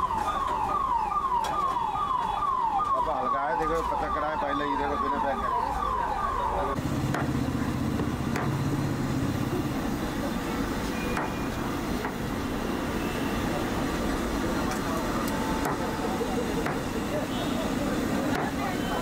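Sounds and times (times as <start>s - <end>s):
falling siren-like wail: 0.0s - 6.8s
street stall background noise: 0.0s - 19.0s
cleaver chopping on wooden block: 7.1s - 7.4s, 8.0s - 8.6s, 15.6s - 15.9s, 16.6s - 16.8s, 18.3s - 18.6s.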